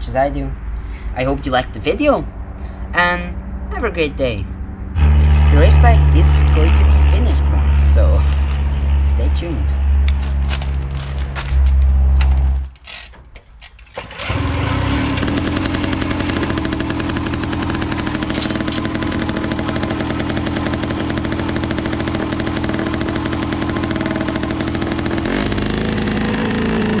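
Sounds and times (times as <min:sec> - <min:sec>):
two-stroke moped engine running: 0:14.0 - 0:27.0.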